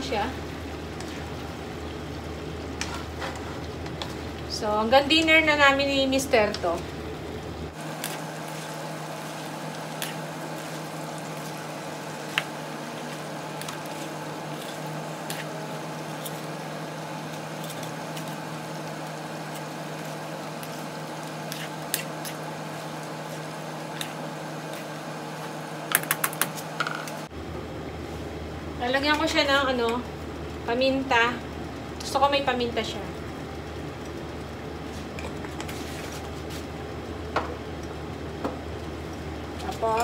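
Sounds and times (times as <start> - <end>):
vegetables sizzling in a pan: 7.7 - 25.8.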